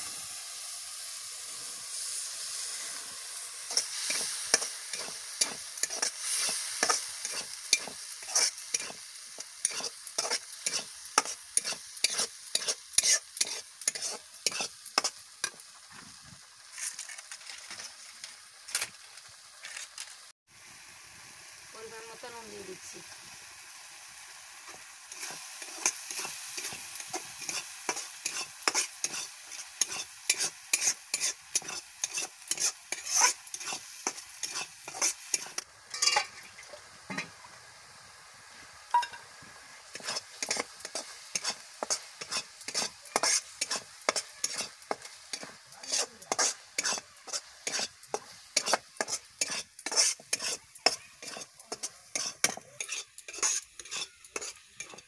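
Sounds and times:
paste frying in oil: 0.0s - 55.0s
ladle scraping thick paste in pan: 9.6s - 15.6s, 27.4s - 36.2s, 39.9s - 55.0s.

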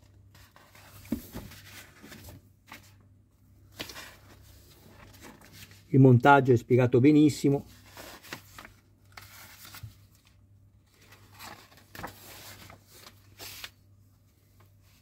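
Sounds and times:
magazine pages turning: 3.6s - 5.9s, 7.7s - 13.9s.

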